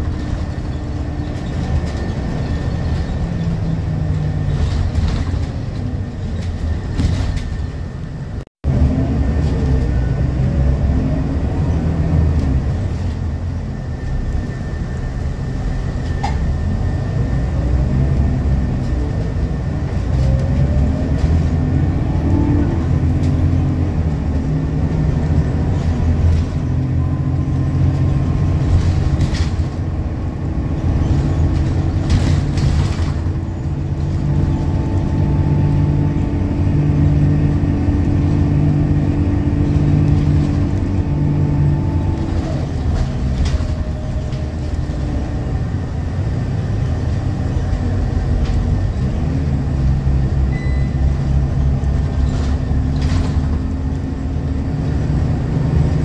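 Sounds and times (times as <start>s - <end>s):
bus diesel engine shifting gears: 0.0s - 56.0s
road rumble inside bus: 0.0s - 56.0s.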